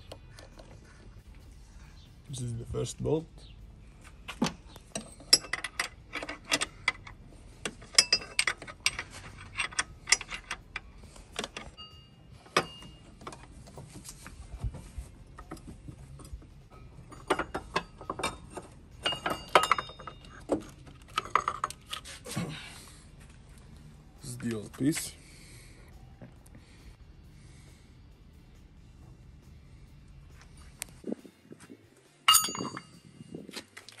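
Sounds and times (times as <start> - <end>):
wrench clicking on bolts: 4.8 - 11.8.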